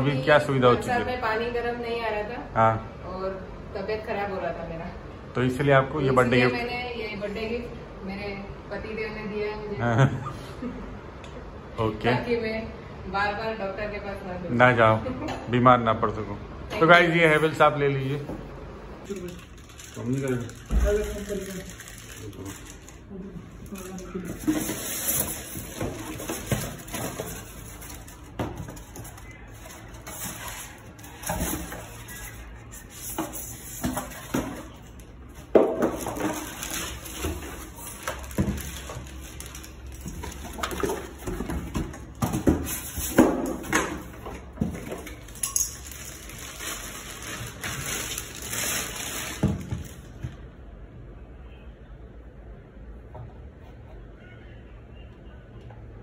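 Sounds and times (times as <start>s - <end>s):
plastic wrap crinkling: 19.0s - 34.4s, 35.8s - 41.4s, 44.9s - 50.2s
polystyrene and cardboard rustling: 19.1s - 34.8s, 35.8s - 43.8s, 44.6s - 50.3s.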